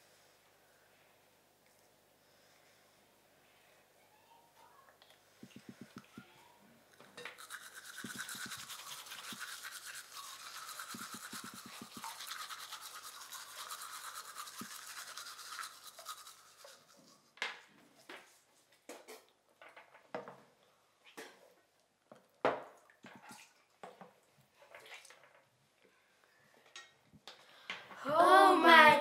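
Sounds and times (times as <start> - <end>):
toothbrushes scrubbing teeth: 7.2 - 17.4
wet spitting and splashing: 7.3 - 17.4.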